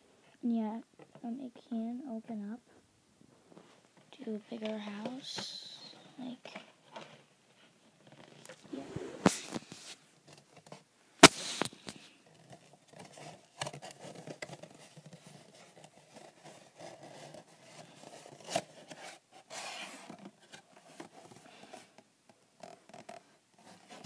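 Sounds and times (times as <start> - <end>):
paper rustling and scraping: 8.1 - 21.9
sharp knock: 11.2 - 11.8.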